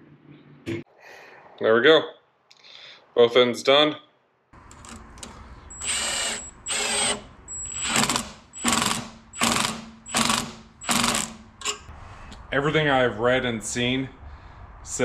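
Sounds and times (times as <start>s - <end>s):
impact wrench hammering: 6.8s - 11.8s.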